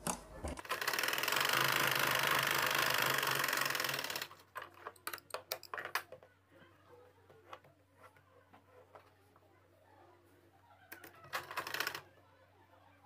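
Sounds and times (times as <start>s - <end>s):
sewing machine running: 0.6s - 4.4s, 11.3s - 12.0s.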